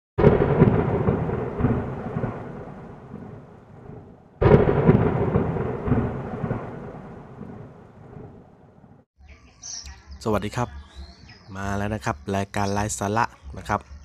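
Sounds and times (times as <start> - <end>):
thunderclap with rolling rumble: 0.2 - 9.0.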